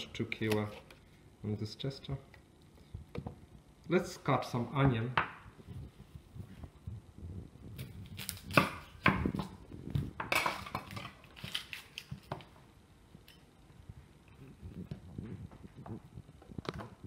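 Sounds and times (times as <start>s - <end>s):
knife crunching through onion: 7.8s - 9.4s.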